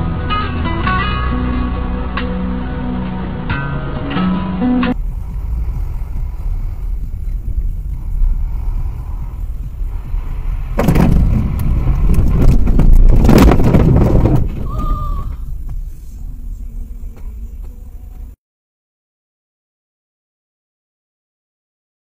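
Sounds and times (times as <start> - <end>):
strummed guitar music: 0.0 - 5.0
engine and road rumble: 0.0 - 18.4.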